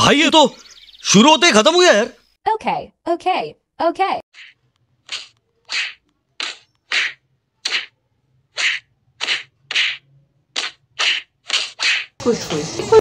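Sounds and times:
short hissing puffs: 4.4 - 7.9.

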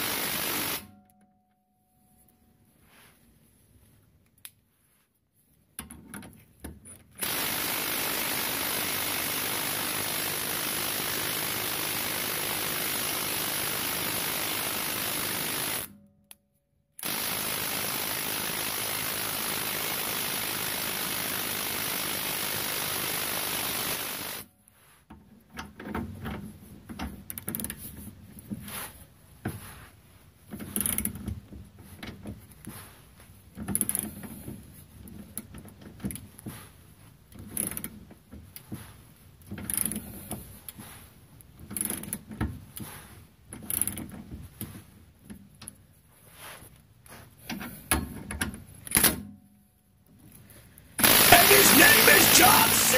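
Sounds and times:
gas torch hissing: 51.0 - 52.9.

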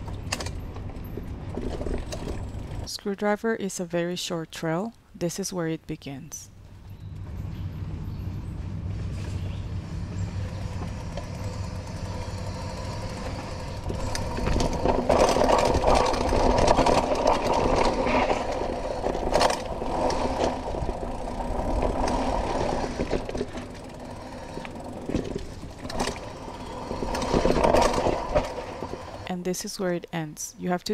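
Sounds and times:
bike knocks and rattles: 0.0 - 2.9, 9.1 - 29.2
bike tyres and wind rumble: 0.0 - 2.9, 6.6 - 29.3
bicycle freehub buzzing: 6.8 - 29.3.

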